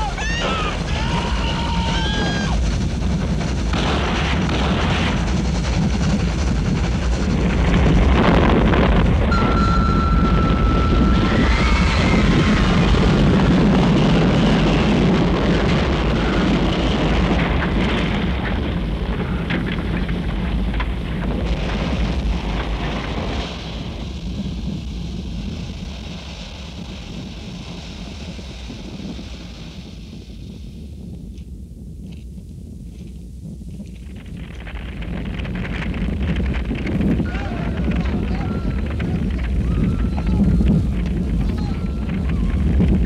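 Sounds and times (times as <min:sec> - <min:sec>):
heavy crash rumble and roar: 0:00.0 - 0:32.8, 0:33.4 - 0:43.0
held high tone: 0:09.3 - 0:11.8.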